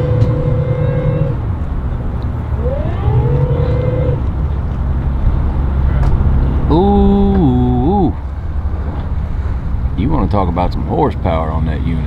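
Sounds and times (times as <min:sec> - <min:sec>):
whining tone: 0:00.0 - 0:08.3
outboard motors rumbling: 0:00.0 - 0:12.0.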